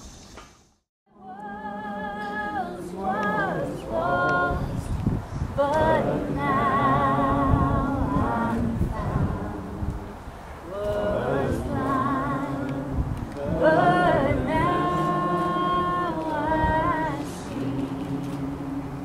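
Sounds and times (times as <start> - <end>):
person singing with vibrato: 1.1 - 19.0.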